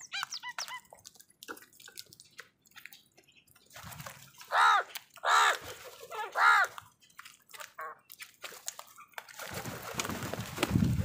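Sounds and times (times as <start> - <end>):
beaks pecking: 0.0 - 10.3
crows cawing: 4.5 - 6.8.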